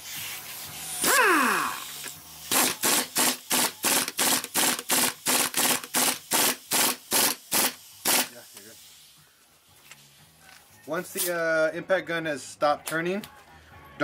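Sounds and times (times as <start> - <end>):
impact gun hammering bursts: 2.5 - 8.3
impact gun spinning: 2.5 - 8.3.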